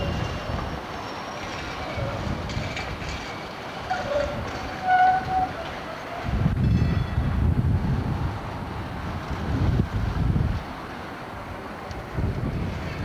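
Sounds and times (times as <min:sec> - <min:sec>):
tram wheels squealing: 0:00.0 - 0:07.4
tram rumbling on rails: 0:00.0 - 0:13.0.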